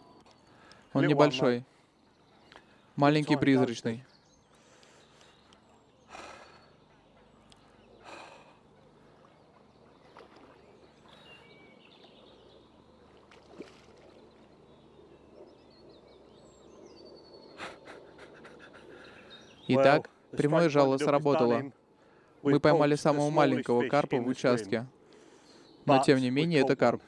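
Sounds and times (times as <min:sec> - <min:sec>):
breath-like sounds: 0:04.5 - 0:09.2, 0:17.6 - 0:19.5, 0:25.0 - 0:25.8.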